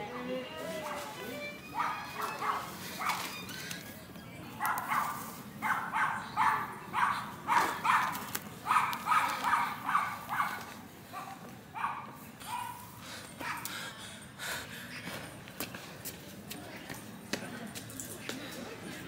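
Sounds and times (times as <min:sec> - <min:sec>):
dog barking: 0:01.8 - 0:03.2, 0:04.6 - 0:12.8.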